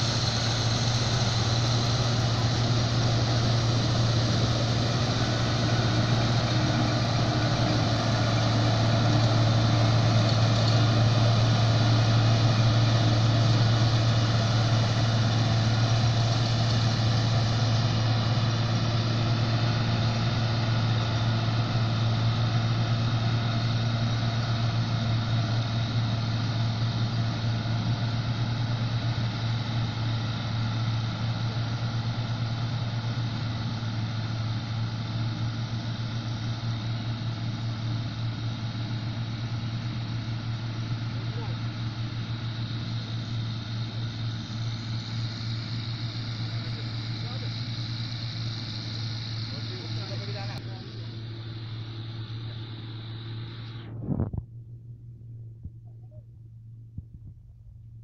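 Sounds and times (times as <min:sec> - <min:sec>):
combine harvester droning: 0:00.0 - 0:58.0.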